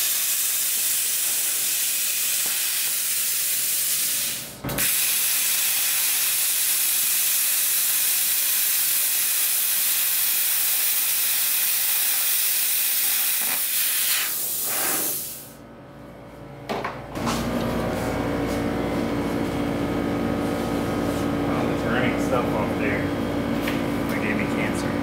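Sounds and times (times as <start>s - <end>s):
plasma cutter hissing: 0.0s - 15.6s.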